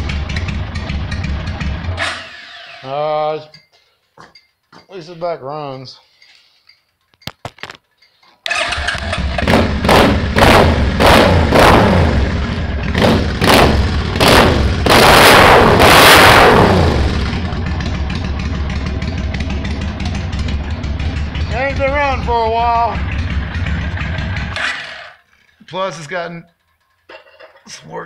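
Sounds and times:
motorcycle engine revving and idling: 0.0 - 2.3, 8.5 - 25.4.

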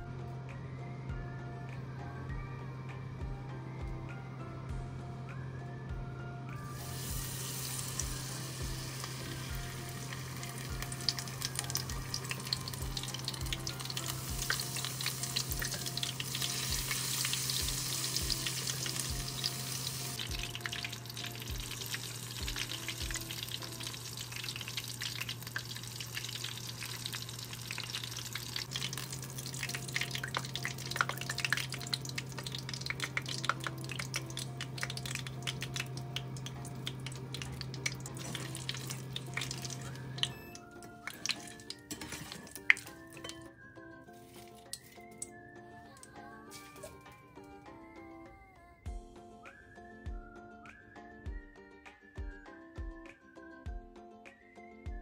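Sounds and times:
soft background music: 0.0 - 55.0
shrimp deep-frying in oil: 6.6 - 43.5.

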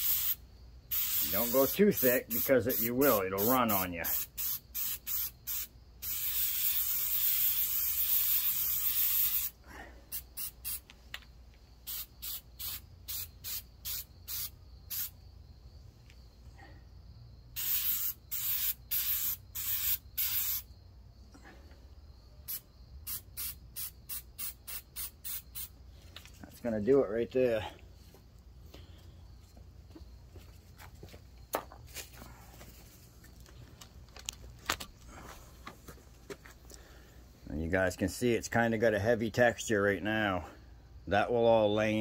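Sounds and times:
aerosol can spraying: 0.0 - 10.9, 11.8 - 15.1, 17.6 - 20.7, 22.5 - 25.7.

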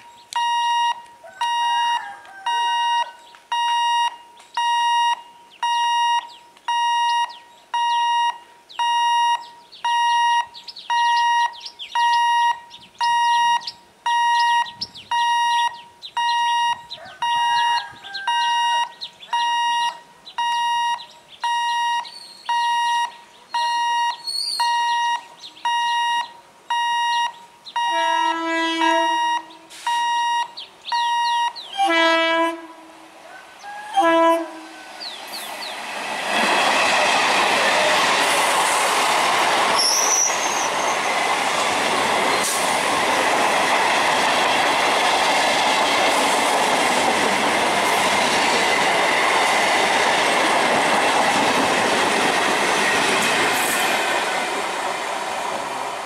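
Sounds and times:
level crossing warning beeps: 0.0 - 32.5
train horn: 27.8 - 29.8, 31.8 - 35.0.

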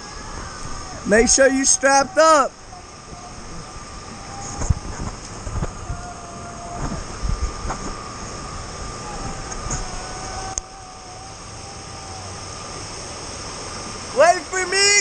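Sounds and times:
river water rushing: 8.0 - 15.0.

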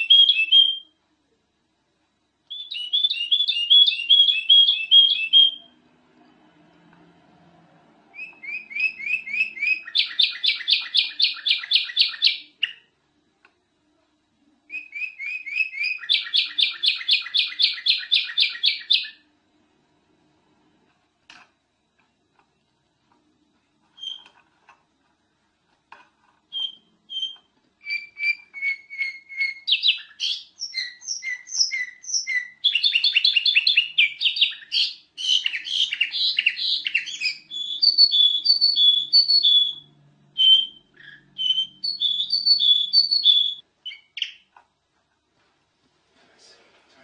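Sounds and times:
bird singing whistled notes: 0.0 - 0.9, 2.5 - 5.8, 8.1 - 12.9, 14.7 - 19.2, 26.5 - 44.5.

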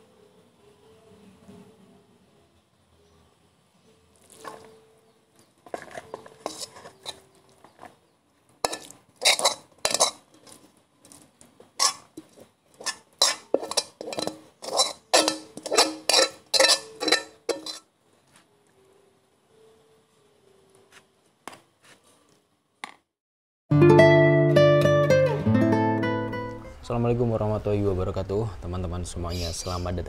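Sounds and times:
utensil scraping a wok: 5.6 - 8.0, 8.6 - 10.7, 11.8 - 17.9.

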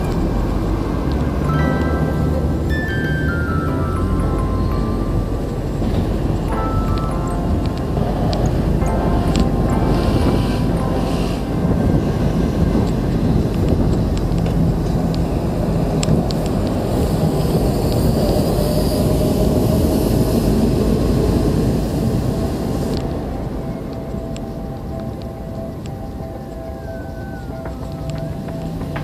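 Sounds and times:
wind buffeting microphone: 0.0 - 29.0
thin high hiss: 1.6 - 12.4.

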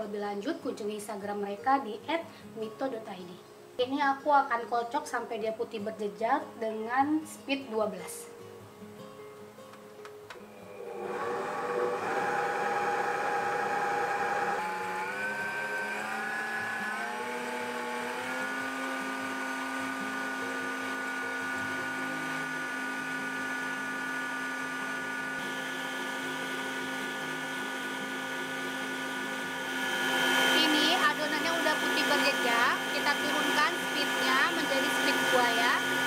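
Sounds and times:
stand mixer motor whirring: 10.4 - 36.0.

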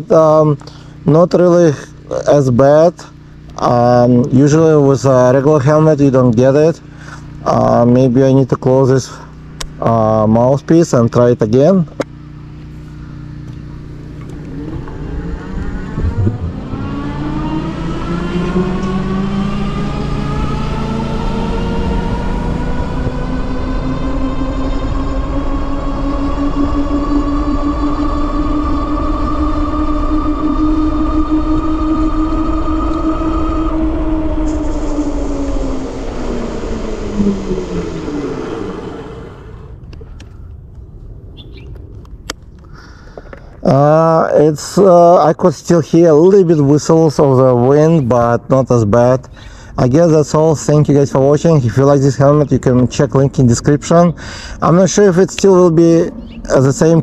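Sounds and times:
electric motor whine: 12.0 - 43.8
wind noise: 14.2 - 19.0, 19.6 - 43.8.

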